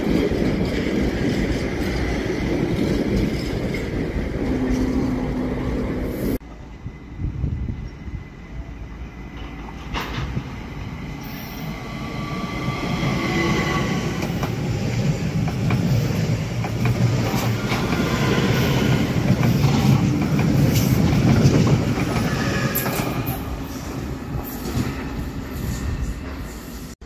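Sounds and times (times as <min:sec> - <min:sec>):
electric train passing: 0:00.0 - 0:27.0.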